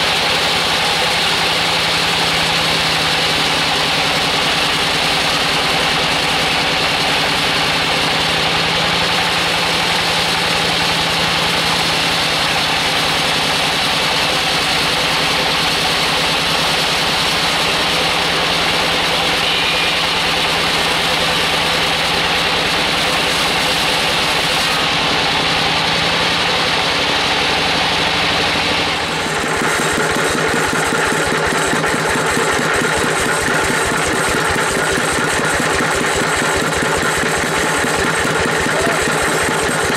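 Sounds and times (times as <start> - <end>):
band saw blade cutting log: 0.0 - 26.6
sawmill engine running: 0.0 - 39.9.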